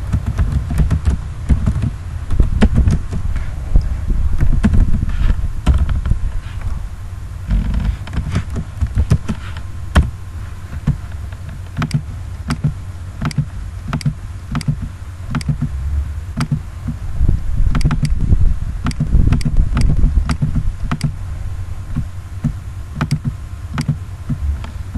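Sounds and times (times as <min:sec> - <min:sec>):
steady low rumble: 0:00.0 - 0:24.9
mouse and keyboard clicks: 0:11.8 - 0:15.7, 0:17.7 - 0:18.2, 0:18.8 - 0:21.1, 0:23.0 - 0:24.0.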